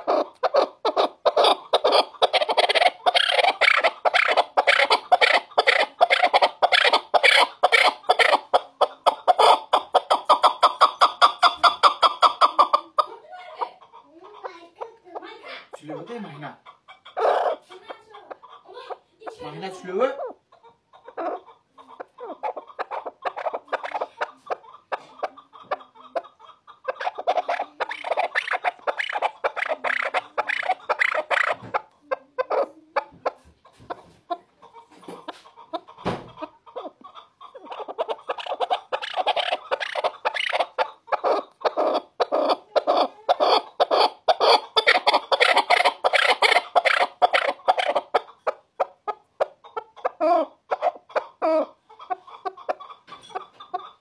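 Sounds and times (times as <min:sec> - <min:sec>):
partridge calling: 0:00.0 - 0:13.1, 0:22.2 - 0:24.3, 0:26.9 - 0:31.8, 0:37.7 - 0:48.6.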